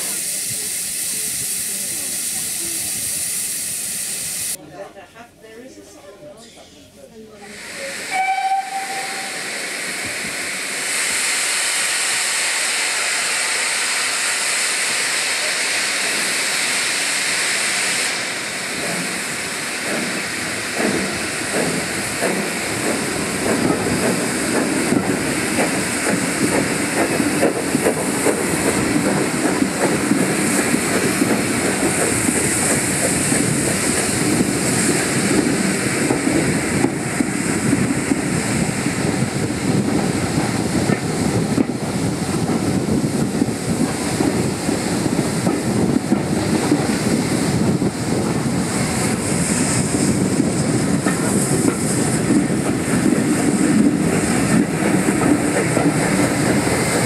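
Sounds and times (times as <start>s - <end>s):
hiss of steam and wind: 0.0s - 4.6s, 6.4s - 57.0s
steam engine exhaust: 0.0s - 4.6s
train wheels clattering on rails: 18.6s - 57.0s.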